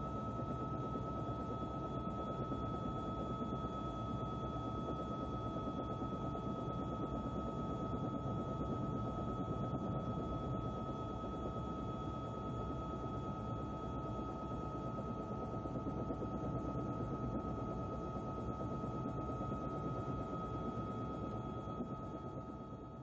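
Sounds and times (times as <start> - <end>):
constant high whine: 0.0 - 23.0.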